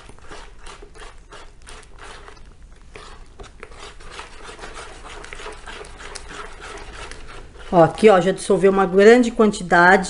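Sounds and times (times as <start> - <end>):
soap paste scraping plastic container: 0.0 - 8.5.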